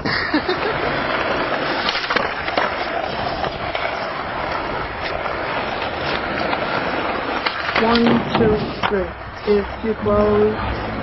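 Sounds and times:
skateboard clacks: 0.0 - 11.0
skateboard wheels rolling on pavement: 0.0 - 11.0.

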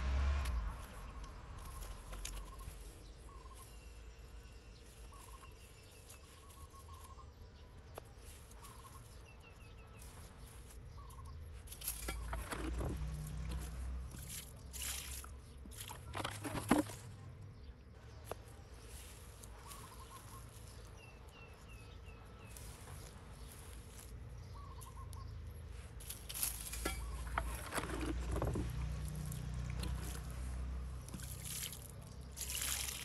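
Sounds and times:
hands rustling soil and grass: 0.8 - 17.3, 18.0 - 33.0.

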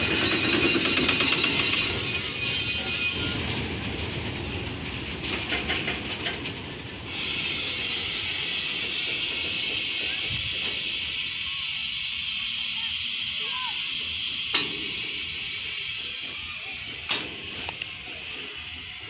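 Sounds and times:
freight train rolling: 0.0 - 19.0
wheels clicking over rails: 0.0 - 19.0
steady hiss: 7.0 - 19.0.

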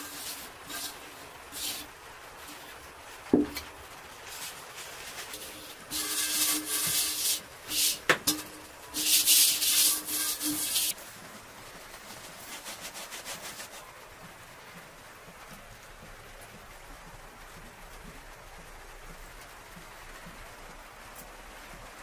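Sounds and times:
plastic jar rubbing: 3.4 - 11.0
sugar pouring into metal bowl: 5.3 - 11.0.

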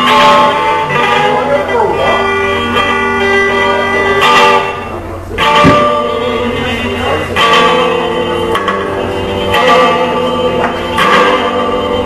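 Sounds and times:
guitar strumming chords: 0.0 - 12.0.

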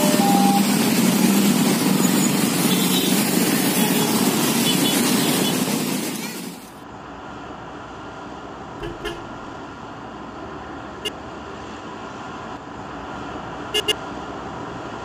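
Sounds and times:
motorcycle engines running: 0.0 - 5.5.

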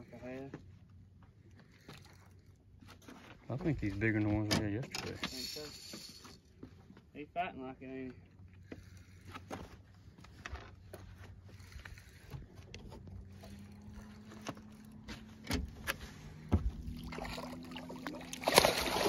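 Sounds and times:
low steady hum: 11.4 - 19.0
fish splashing in water: 16.8 - 19.0.

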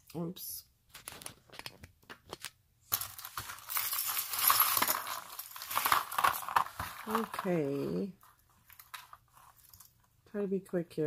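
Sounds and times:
jewelry chains and beads clattering: 2.9 - 10.0.

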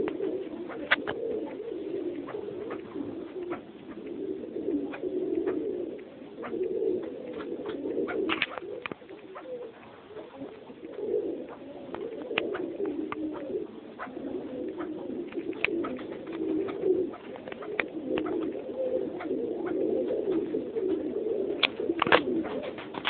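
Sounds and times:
birds cooing: 0.0 - 23.0.

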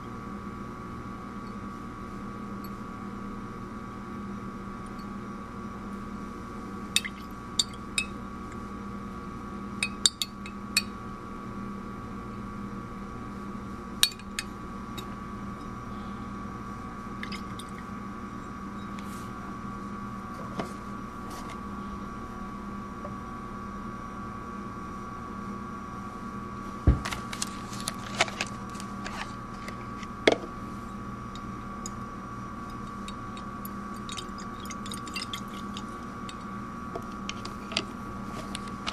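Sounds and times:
room hum: 0.0 - 38.9
glass flask clinking: 33.0 - 36.4.

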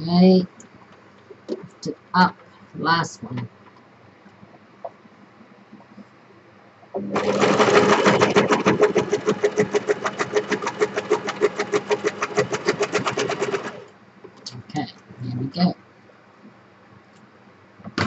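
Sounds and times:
sewing machine stitching: 7.0 - 13.9.

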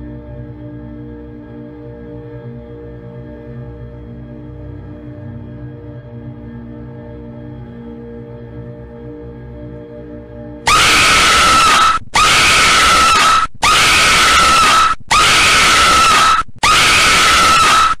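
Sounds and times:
low eerie music: 0.0 - 11.9
harsh scream sound effect: 10.7 - 18.0.

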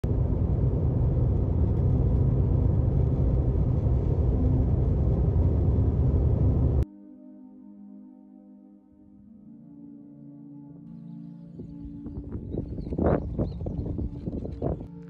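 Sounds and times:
car driving on road: 0.0 - 6.8.

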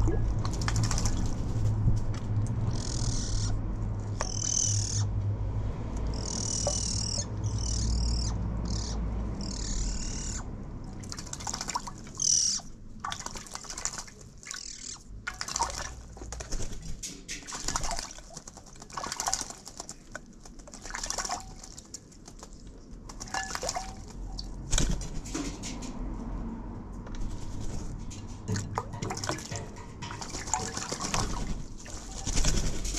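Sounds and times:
bird splashing in water: 0.3 - 1.4, 10.9 - 12.3, 13.0 - 16.5, 17.3 - 25.5, 28.4 - 32.9
wing flutters: 13.2 - 24.1, 27.2 - 28.4, 29.6 - 32.9.

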